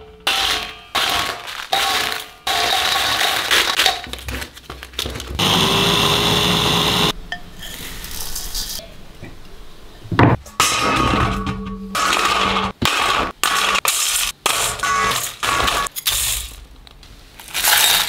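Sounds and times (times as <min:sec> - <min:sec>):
electric spice grinder running: 0:05.4 - 0:07.1
dried chillies rattling into bowl: 0:17.4 - 0:18.0.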